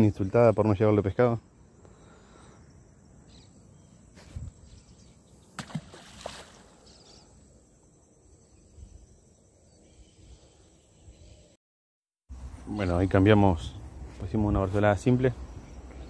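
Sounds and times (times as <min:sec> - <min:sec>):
faint outdoor background: 0:00.0 - 0:11.6, 0:12.2 - 0:16.0
splash in water: 0:05.6 - 0:06.9.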